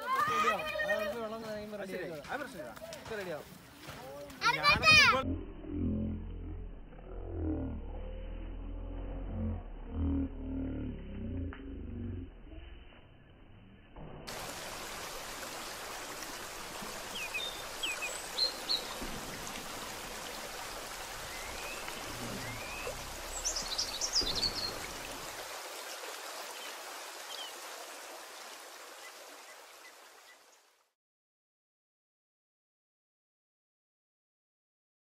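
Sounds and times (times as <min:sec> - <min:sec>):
high bird chirps: 0:21.2 - 0:25.1.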